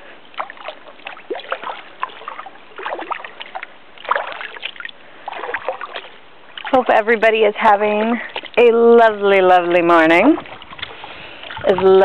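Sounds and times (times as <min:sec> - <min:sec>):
paddle dipping in water: 0:00.0 - 0:12.0
water dripping and splashing: 0:00.0 - 0:12.0.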